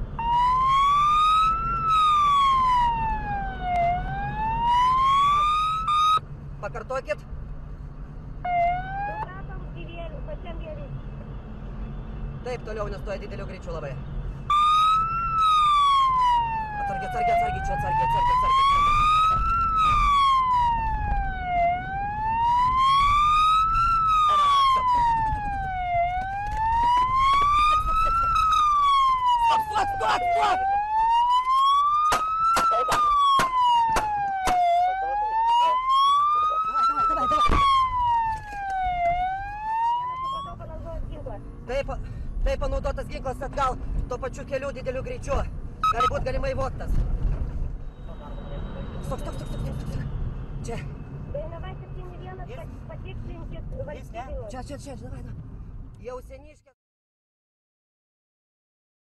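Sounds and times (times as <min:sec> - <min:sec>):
police siren wailing: 0:00.0 - 0:06.2, 0:08.4 - 0:09.4, 0:14.5 - 0:40.9, 0:45.8 - 0:46.3
low vehicle rumble: 0:13.9 - 0:56.0.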